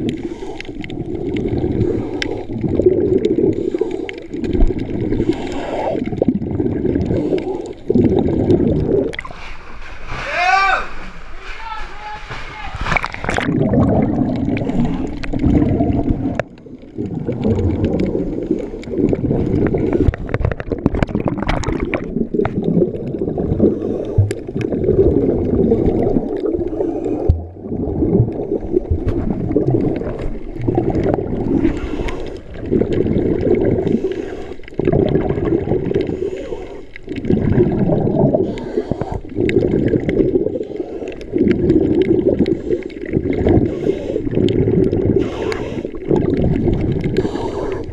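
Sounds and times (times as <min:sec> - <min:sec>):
underwater gurgling and bubbling: 0:00.0 - 0:10.1, 0:12.8 - 0:47.9.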